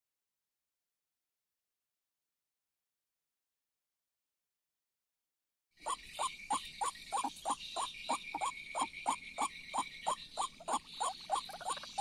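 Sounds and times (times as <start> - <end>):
waterhen calling: 5.9 - 12.0.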